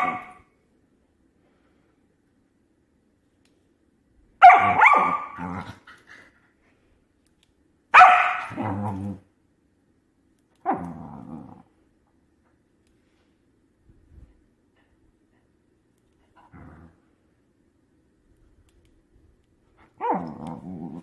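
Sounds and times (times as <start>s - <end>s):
dog barking and growling: 0.0s - 0.4s, 4.4s - 6.0s, 8.0s - 9.3s, 10.6s - 11.8s, 19.8s - 21.0s.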